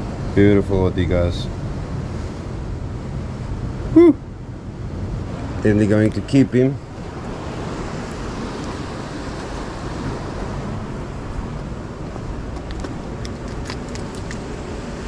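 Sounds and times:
ocean surf: 0:00.0 - 0:15.0.

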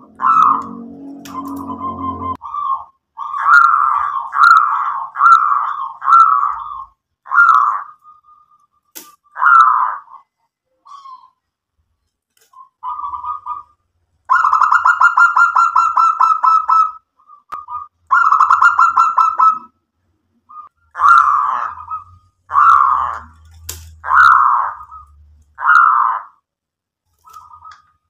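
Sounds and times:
dove cooing: 0:00.0 - 0:07.9, 0:12.8 - 0:17.0, 0:17.6 - 0:19.7, 0:20.6 - 0:26.2.

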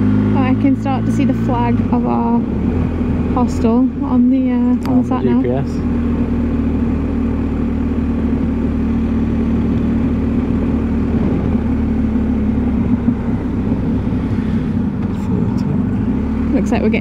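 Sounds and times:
motorcycle engine running: 0:00.0 - 0:17.0
road noise: 0:00.0 - 0:17.0
wind noise: 0:10.4 - 0:15.3.

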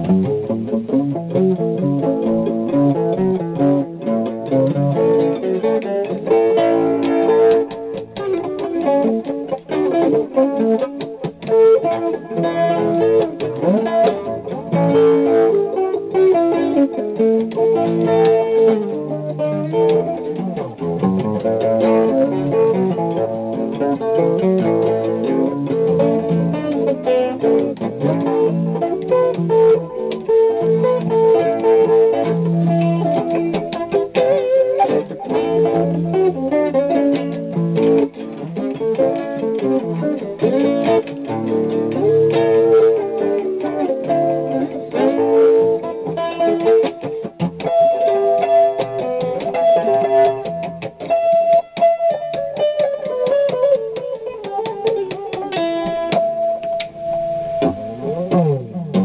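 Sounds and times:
jazz guitar picking: 0:00.0 - 0:59.0.

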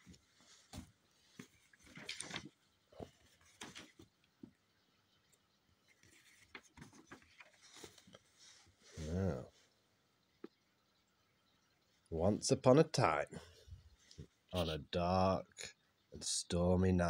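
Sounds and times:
paper pages rustling: 0:00.0 - 0:04.2, 0:05.9 - 0:08.6.

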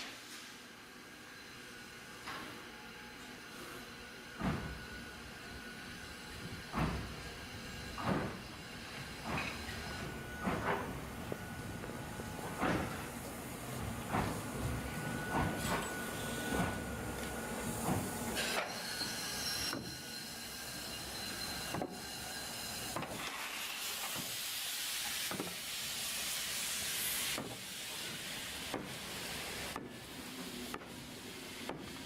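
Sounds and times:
steam hissing: 0:04.6 - 0:32.0
high squeal: 0:18.7 - 0:22.9.

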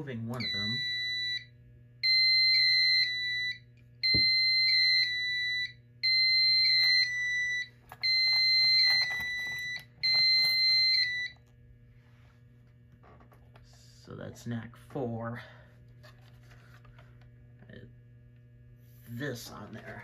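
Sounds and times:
fire alarm beeping: 0:00.2 - 0:11.4.

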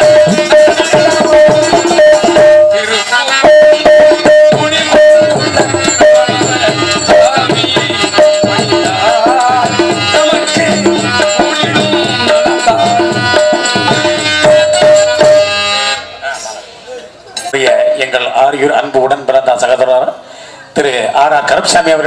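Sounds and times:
folk melody line: 0:00.0 - 0:16.2
tabla and hand drum rhythm: 0:00.0 - 0:16.8, 0:17.4 - 0:19.8, 0:21.0 - 0:22.0.

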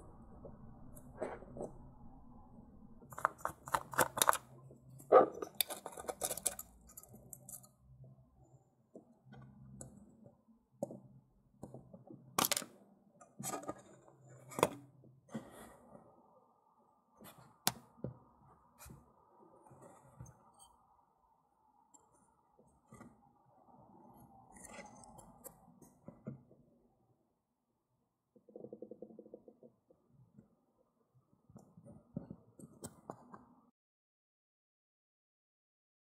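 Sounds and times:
plastic parts clicking and knocking: 0:03.1 - 0:07.8, 0:10.8 - 0:14.8.

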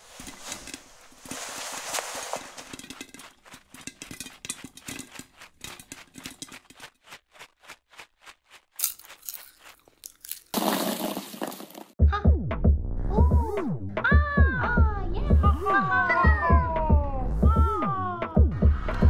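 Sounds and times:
popcorn popping: 0:02.4 - 0:11.9.

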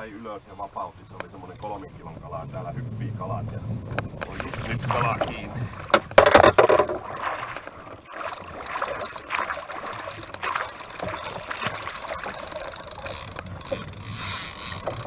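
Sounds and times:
river and hull water noise: 0:00.0 - 0:15.0
fish splashing at the surface: 0:03.8 - 0:15.0.

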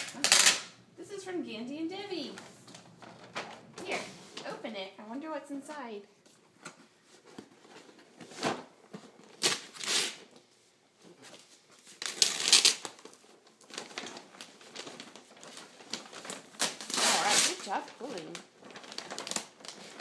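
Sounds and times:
wrapping paper tearing: 0:00.0 - 0:00.8, 0:09.2 - 0:10.3, 0:11.8 - 0:20.0.

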